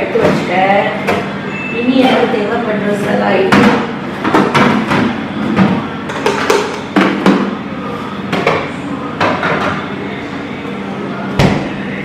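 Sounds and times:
kitchen containers and utensils clunking: 2.0 - 7.6, 8.3 - 10.0.

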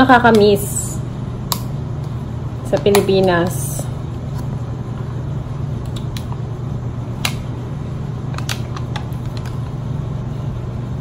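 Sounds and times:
air conditioner humming: 0.0 - 11.0
plastic liner clicks and crinkles: 8.4 - 9.6.

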